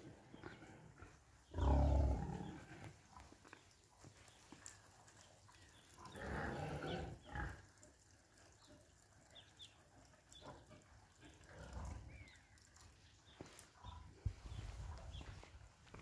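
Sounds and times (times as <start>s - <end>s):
pigs grunting: 0.0s - 3.0s, 6.0s - 7.7s, 10.4s - 12.4s.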